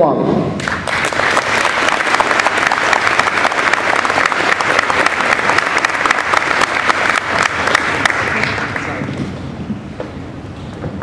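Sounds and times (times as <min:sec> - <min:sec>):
audience applauding: 0:00.6 - 0:09.2.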